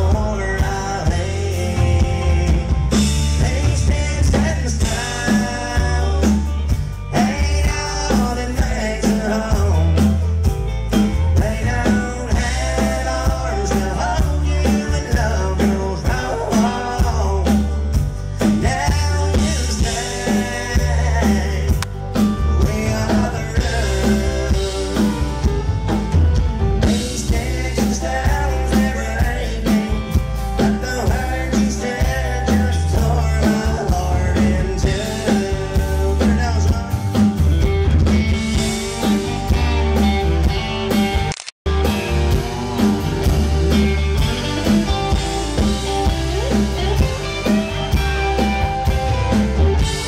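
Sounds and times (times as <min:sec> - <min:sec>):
man singing: 0:00.0 - 0:26.0, 0:26.8 - 0:37.4
acoustic guitar strumming: 0:00.0 - 0:50.0
bass: 0:00.0 - 0:50.0
drum kit steady beat: 0:00.0 - 0:50.0.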